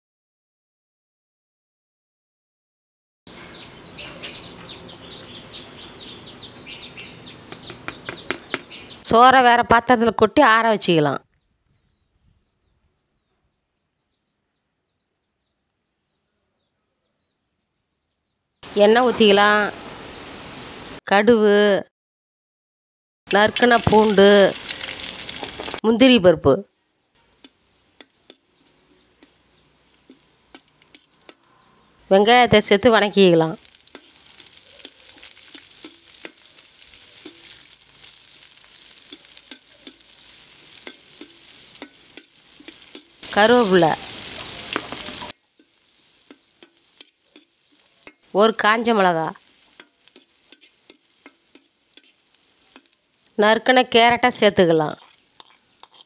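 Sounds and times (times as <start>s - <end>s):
small bird chirping: 3.3s - 9.1s, 11.2s - 19.0s, 27.1s - 53.5s, 54.8s - 56.0s
onions sizzling in oil: 18.6s - 21.0s, 23.3s - 26.2s, 27.2s - 56.0s
metal spatula scraping a pan: 27.2s - 31.9s, 33.6s - 48.4s, 49.4s - 53.2s, 54.9s - 56.0s.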